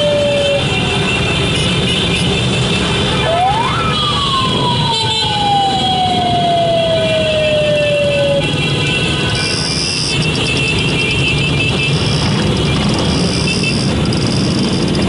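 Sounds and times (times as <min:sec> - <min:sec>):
road traffic and engine noise: 0:00.0 - 0:15.0.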